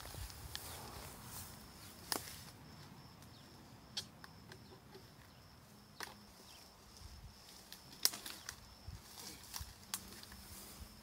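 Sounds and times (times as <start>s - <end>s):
deadwood snapping: 7.7s - 8.6s.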